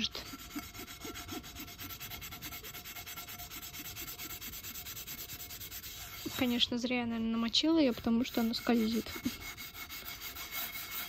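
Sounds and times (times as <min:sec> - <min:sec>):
scrubbing frying pan: 0:00.0 - 0:11.0.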